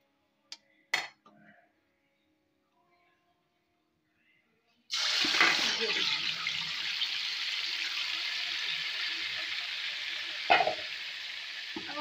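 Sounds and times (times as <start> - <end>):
chicken sizzling in hot oil: 4.9 - 12.0.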